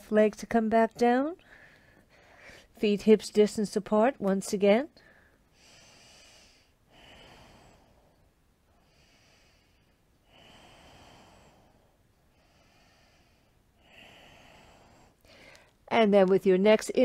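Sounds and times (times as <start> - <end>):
deep hissing breathing: 5.1 - 15.2.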